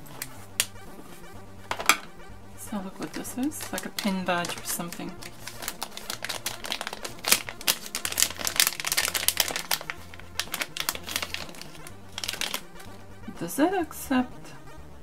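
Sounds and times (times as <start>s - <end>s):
plastic bag crinkling: 3.0s - 12.9s.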